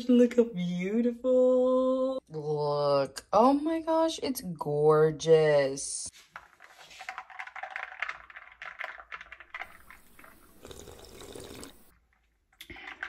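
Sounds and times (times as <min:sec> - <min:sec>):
ice cubes clinking in a glass: 0:07.2 - 0:11.9
sipping through a straw: 0:09.6 - 0:11.9.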